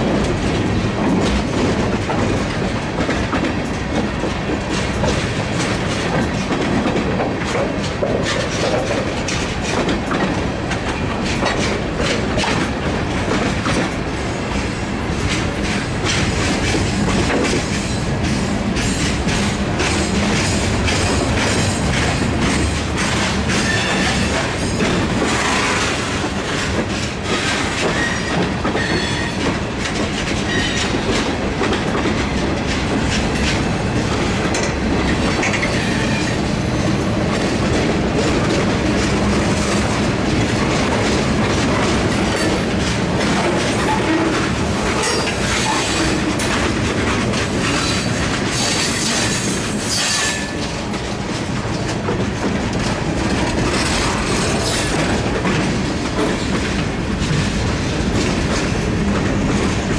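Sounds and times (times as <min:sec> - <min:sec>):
freight train wheels rumbling: 0:00.0 - 0:59.9
train wheel squeals: 0:23.2 - 0:26.2, 0:27.3 - 0:29.5, 0:30.4 - 0:31.0, 0:35.5 - 0:36.4, 0:43.3 - 0:46.2, 0:47.6 - 0:50.7.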